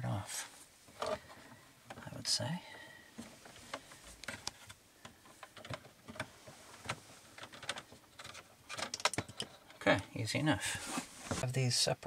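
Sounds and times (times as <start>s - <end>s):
wire handling clicks and rustles: 0.8s - 10.0s.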